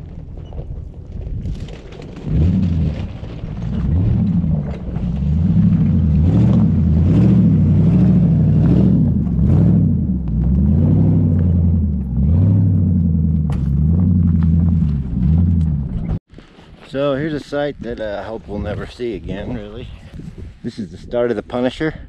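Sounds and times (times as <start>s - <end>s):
pickup truck engine pulling: 0.0s - 16.2s.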